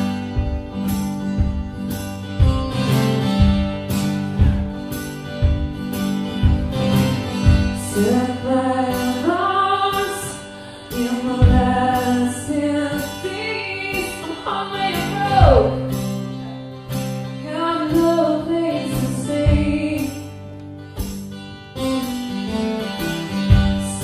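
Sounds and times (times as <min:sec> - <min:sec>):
strummed acoustic guitar: 0:00.0 - 0:24.0
person singing: 0:07.8 - 0:16.7, 0:17.4 - 0:20.3.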